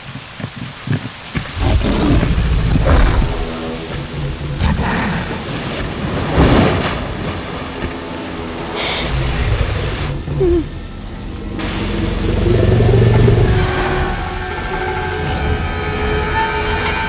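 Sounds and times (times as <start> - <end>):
waterfall rushing: 0.0 - 10.2, 11.6 - 17.0
dinosaur growling and roaring: 1.4 - 7.2, 11.6 - 14.2
low tense music: 1.6 - 17.0.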